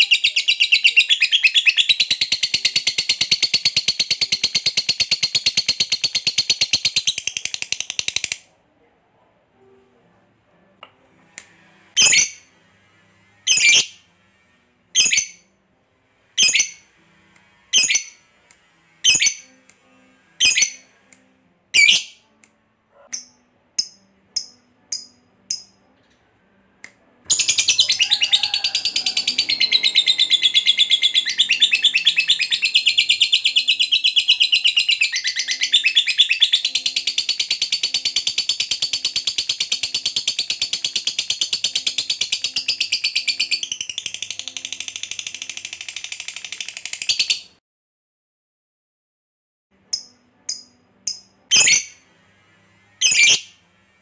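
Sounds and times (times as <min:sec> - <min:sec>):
sharp bird calls: 0:27.3 - 0:37.0
bird chattering trill: 0:27.3 - 0:43.6.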